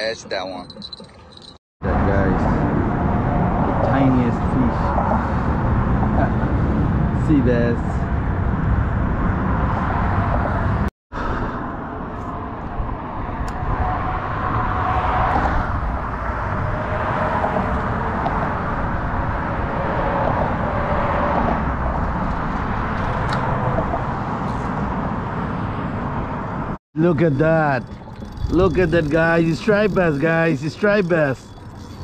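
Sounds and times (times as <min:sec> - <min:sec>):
cars rushing past: 0:01.8 - 0:26.8.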